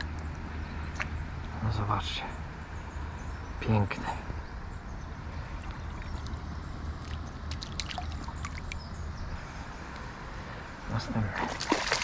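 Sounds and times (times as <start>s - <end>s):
water splashes and drips: 0.0s - 1.6s, 5.5s - 8.9s, 11.0s - 12.0s
short sharp splashes: 7.0s - 8.8s, 11.3s - 12.0s.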